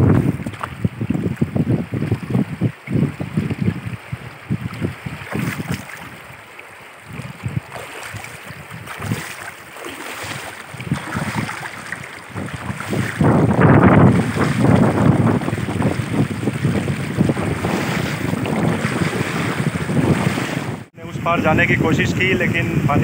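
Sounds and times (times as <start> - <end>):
wind buffeting microphone: 0.0 - 23.0
river flowing over pebbles: 3.9 - 16.4.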